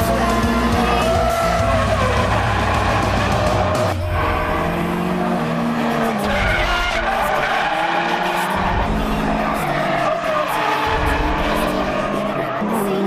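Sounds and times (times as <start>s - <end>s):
car engines revving: 0.0s - 13.0s
tyres skidding: 0.0s - 13.0s.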